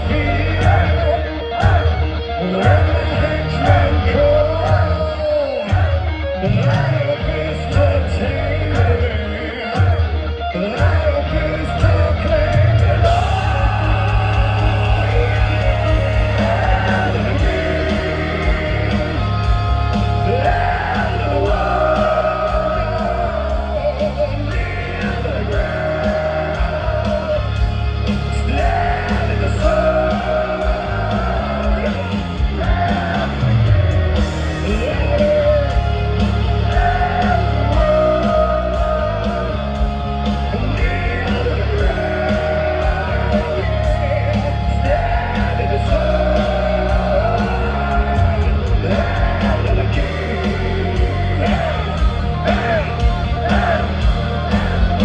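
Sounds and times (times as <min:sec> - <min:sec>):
heavy metal band playing live: 0:00.0 - 0:55.0
sung vocal lines: 0:00.0 - 0:55.0.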